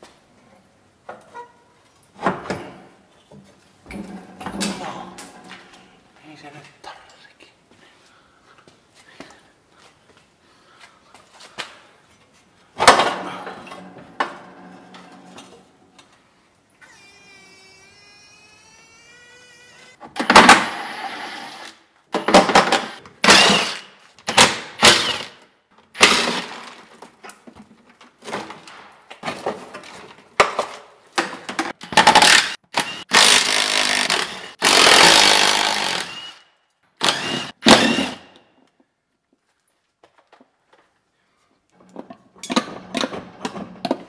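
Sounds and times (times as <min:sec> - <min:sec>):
power tool bursts: 0:22.4 - 0:25.4, 0:26.0 - 0:26.7, 0:32.0 - 0:38.4.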